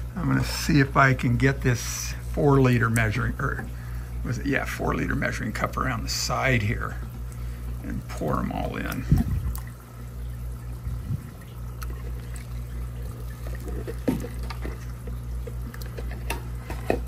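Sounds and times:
steady low hum: 0.0s - 17.0s
water pouring and splashing: 6.8s - 17.0s.

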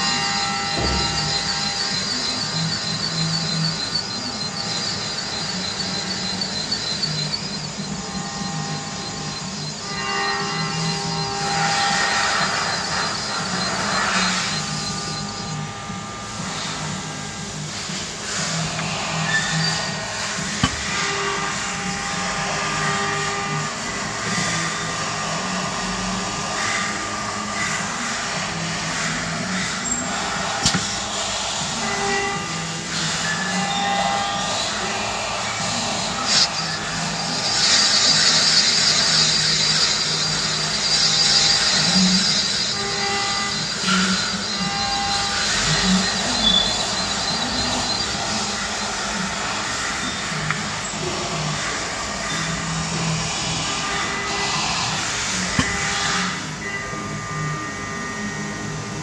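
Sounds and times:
valve seat cutter machining whine: 0.0s - 59.0s
sharp click: 30.6s - 31.0s.

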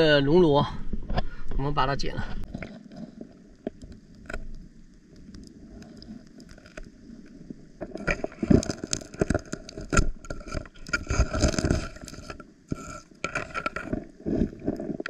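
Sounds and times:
faint clicks: 3.5s - 11.0s
scraping on rock: 7.8s - 15.0s.

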